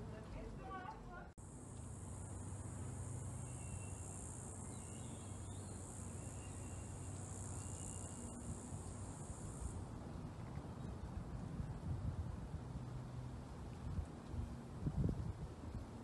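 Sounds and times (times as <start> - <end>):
high-pitched insect buzz: 1.4 - 9.8.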